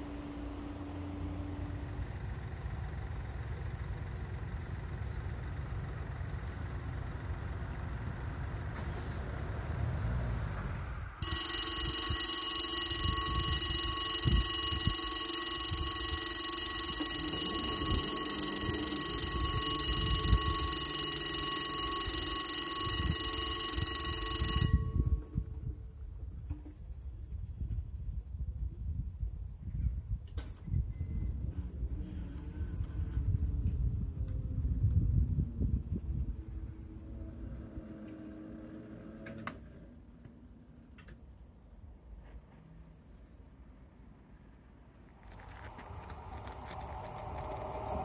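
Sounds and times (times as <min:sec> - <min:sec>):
level crossing warning bell: 0:11.2 - 0:25.9
background rumble and hiss: 0:25.0 - 0:38.2.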